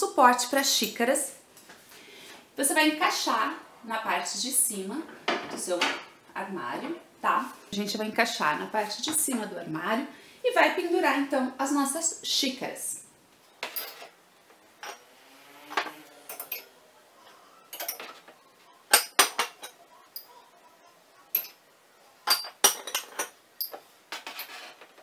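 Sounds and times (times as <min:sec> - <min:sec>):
ceramic mugs clinking on wire rack: 0:15.8 - 0:16.7, 0:17.7 - 0:18.2, 0:22.2 - 0:24.6.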